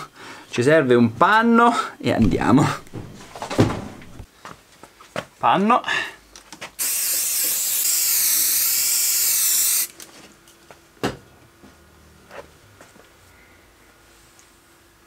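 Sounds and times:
aerosol spray can hissing: 6.8 - 9.9.

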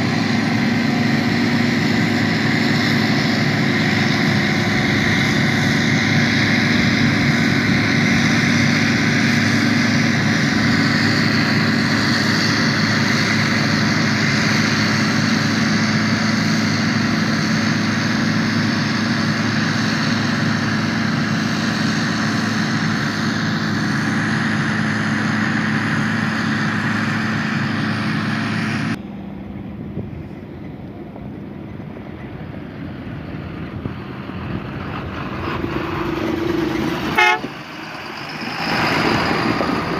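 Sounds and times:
harvester and tractor engines droning: 0.0 - 39.9.

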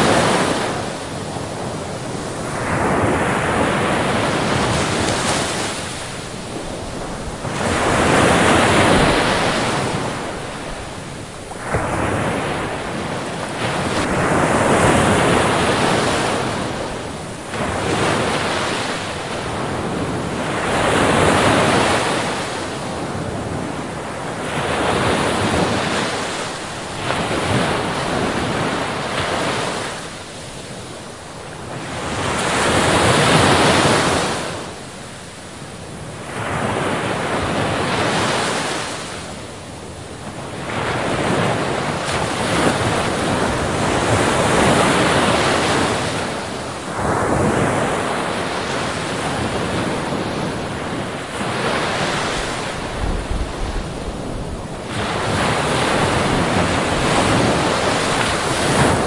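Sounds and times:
waves breaking on rocks: 51.2 - 59.0.

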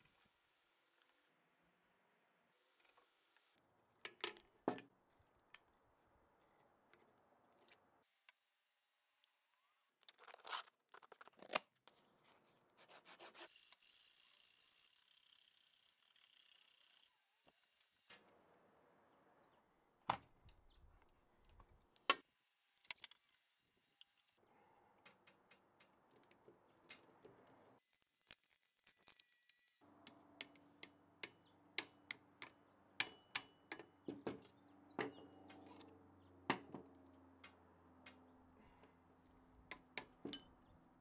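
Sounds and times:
metallic clicks of tools and parts: 4.0 - 5.6, 29.0 - 36.0, 39.7 - 40.6.

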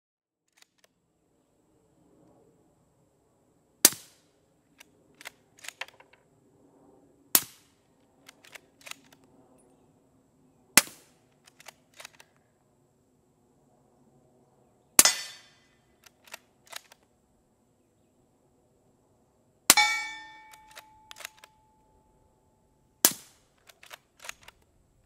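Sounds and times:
rifle bolt metallic clicks: 4.8 - 6.2, 8.2 - 9.3, 10.8 - 12.5, 15.0 - 17.1, 19.7 - 21.9, 23.1 - 24.7
suppressed rifle shots: 15.0 - 17.0.

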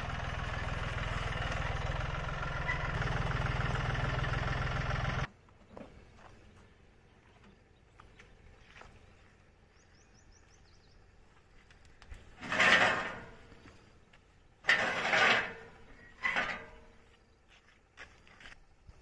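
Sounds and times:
rustling and scraping on tiller: 11.4 - 19.0.

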